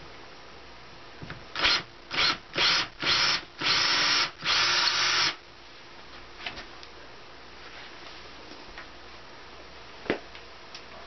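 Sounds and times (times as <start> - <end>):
cordless drill boring metal: 1.6 - 5.4.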